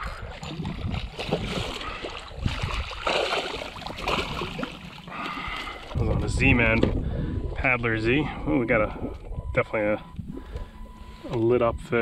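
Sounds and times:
fish thrashing and splashing water: 0.0 - 6.0.

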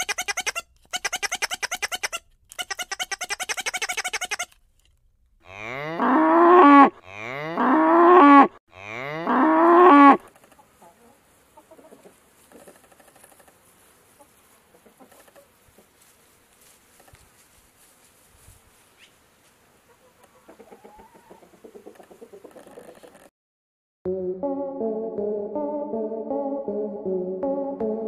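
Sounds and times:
cow mooing: 5.4 - 10.2
chickens clucking: 10.3 - 16.2, 19.8 - 23.3.

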